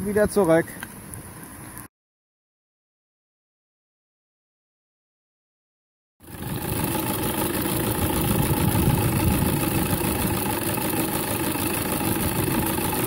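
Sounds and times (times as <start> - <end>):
model steam engine running: 6.2 - 13.0.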